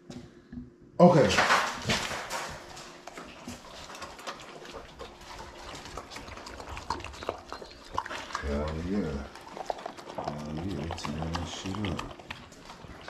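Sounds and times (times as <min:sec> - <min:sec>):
dogs chewing and slurping food: 0:01.2 - 0:13.0.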